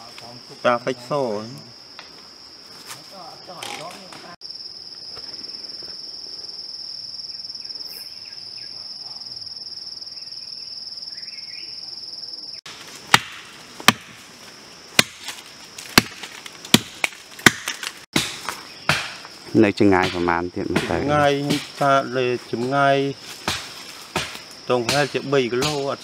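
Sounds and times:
insects droning: 0:00.0 - 0:26.0
blade chopping wood: 0:12.7 - 0:14.2, 0:15.0 - 0:19.3, 0:20.0 - 0:21.8, 0:23.4 - 0:25.9.

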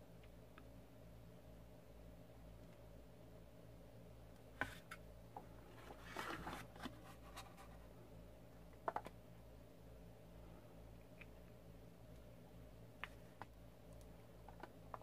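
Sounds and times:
faint low hum: 0:00.0 - 0:15.0
paper rustle: 0:05.7 - 0:07.8.

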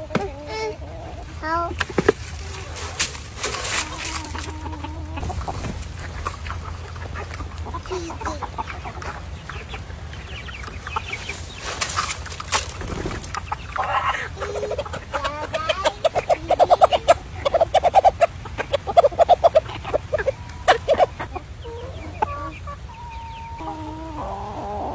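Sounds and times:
hens clucking: 0:00.0 - 0:24.9
rustles and taps of pecking: 0:01.7 - 0:04.5.

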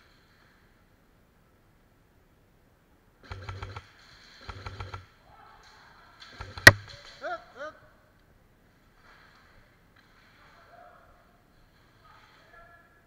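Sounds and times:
airsoft rifle firing clicks: 0:06.3 - 0:07.1.

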